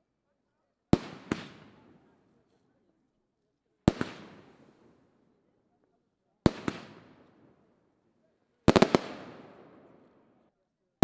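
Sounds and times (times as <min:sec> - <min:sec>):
fireworks bursting with echo: 0:00.9 - 0:02.2, 0:03.8 - 0:05.0, 0:06.4 - 0:07.7, 0:08.6 - 0:10.4.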